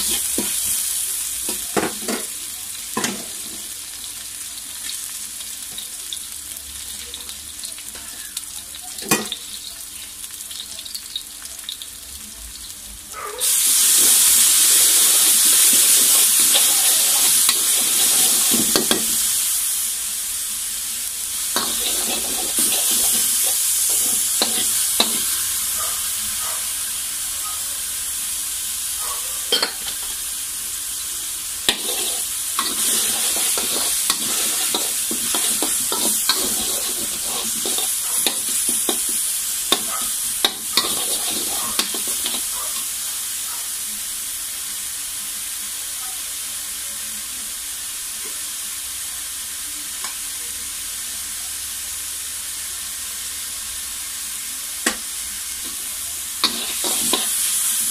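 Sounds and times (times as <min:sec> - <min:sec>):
onion sizzling in hot oil: 0:00.0 - 0:57.9
metal spatula scraping a wok: 0:15.8 - 0:19.3, 0:21.6 - 0:25.5, 0:31.7 - 0:42.9, 0:56.4 - 0:57.9.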